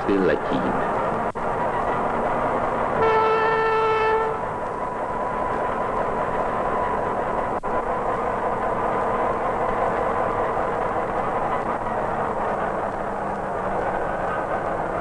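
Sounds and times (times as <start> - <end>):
diesel railcar running: 0.0 - 15.0
horn blast: 3.0 - 4.6.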